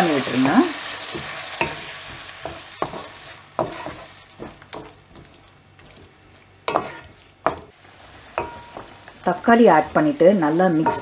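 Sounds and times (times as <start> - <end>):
paste sizzling in oil: 0.0 - 11.0
wooden spatula scraping a pan: 1.1 - 6.1, 6.7 - 7.2.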